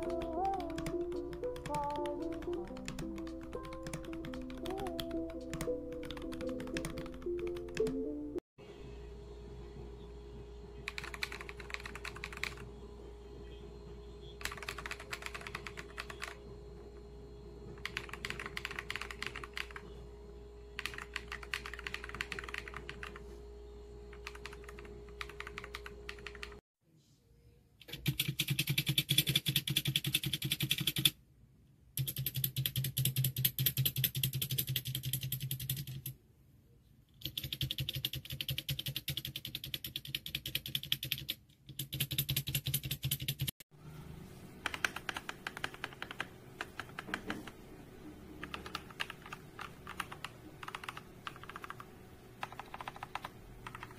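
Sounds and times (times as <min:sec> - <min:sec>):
mechanical keyboard typing: 0:00.0 - 0:08.0, 0:10.9 - 0:12.6, 0:14.4 - 0:16.4, 0:17.8 - 0:19.8, 0:20.8 - 0:23.2, 0:24.1 - 0:26.6, 0:27.9 - 0:31.1, 0:32.0 - 0:36.1, 0:37.2 - 0:43.5, 0:44.6 - 0:47.6, 0:48.4 - 0:53.9.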